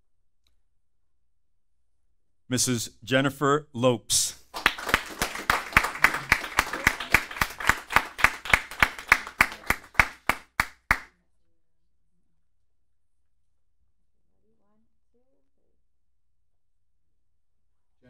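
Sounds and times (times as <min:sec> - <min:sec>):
hands clapping: 0:04.4 - 0:11.1.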